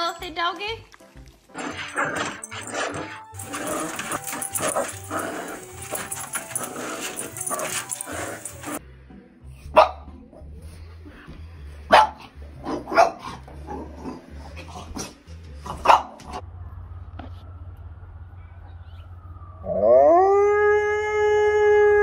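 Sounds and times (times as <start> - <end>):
dog barking: 9.7 - 10.1, 11.9 - 13.4, 15.7 - 16.4.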